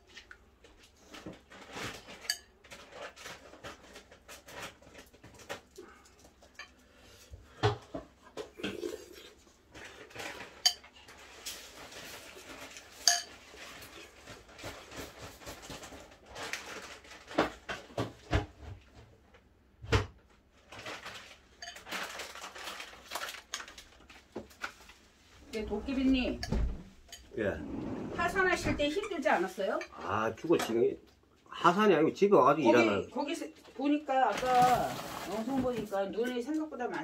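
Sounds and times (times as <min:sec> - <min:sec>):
cutlery clinking against dishes: 0:13.0 - 0:13.4.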